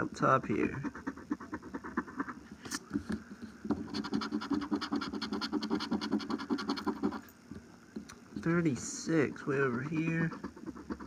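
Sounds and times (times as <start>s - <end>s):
coin scratching lottery ticket: 0.8s - 2.4s, 3.8s - 7.2s, 8.8s - 11.0s.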